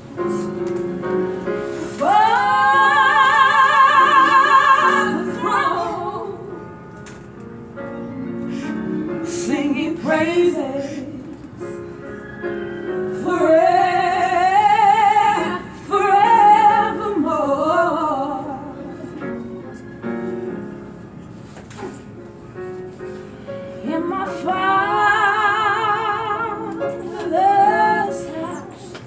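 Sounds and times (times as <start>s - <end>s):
woman singing with vibrato: 1.9s - 6.6s, 9.3s - 11.4s, 13.1s - 18.8s, 23.8s - 29.0s.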